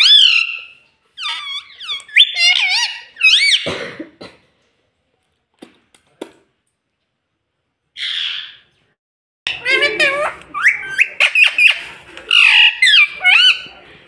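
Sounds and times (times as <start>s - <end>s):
parakeet squeaky whistled calls: 0.0s - 3.6s.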